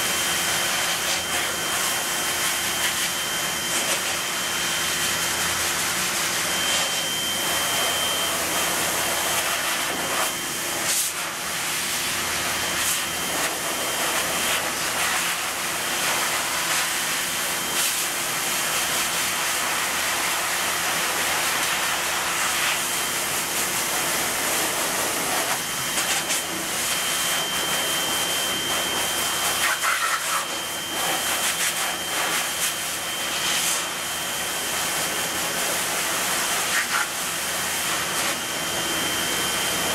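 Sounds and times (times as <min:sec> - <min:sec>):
pet dryer blowing air: 0:00.0 - 0:39.9
faint high whistle: 0:06.5 - 0:08.8, 0:27.0 - 0:32.6.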